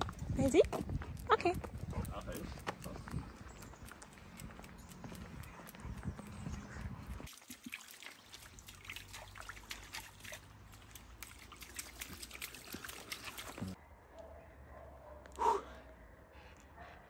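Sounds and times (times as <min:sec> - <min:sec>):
dog lapping water: 0:07.0 - 0:13.8
dog splashing through water: 0:07.1 - 0:13.8
stream trickling over stones: 0:07.2 - 0:13.8.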